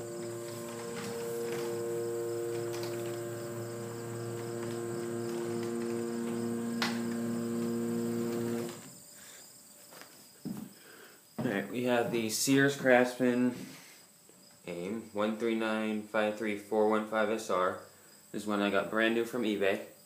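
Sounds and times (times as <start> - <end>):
garage door opener motor running: 0.0 - 9.0.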